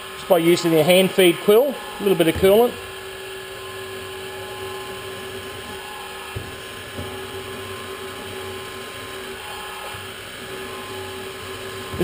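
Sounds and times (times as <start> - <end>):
milling machine motor hum and whine: 0.0 - 12.0.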